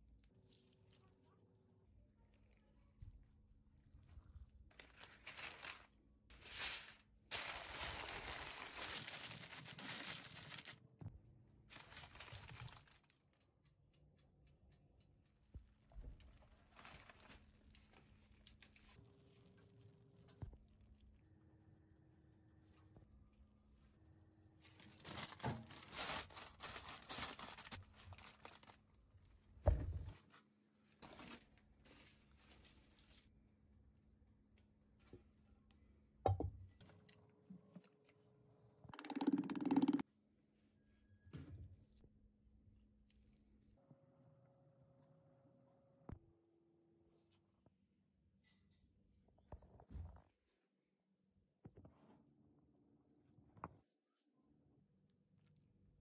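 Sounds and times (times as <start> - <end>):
aluminium foil crinkling: 4.6 - 10.8, 11.7 - 13.8, 16.2 - 19.8, 24.6 - 29.0, 31.0 - 33.3.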